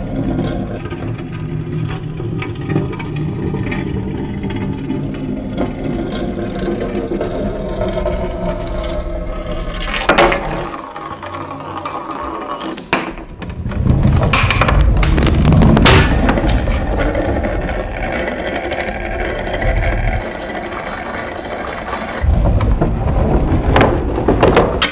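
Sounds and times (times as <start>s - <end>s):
clicks and scrapes: 0.0s - 24.9s
dense clattering: 12.9s - 24.9s
sharp crack: 13.7s - 18.2s.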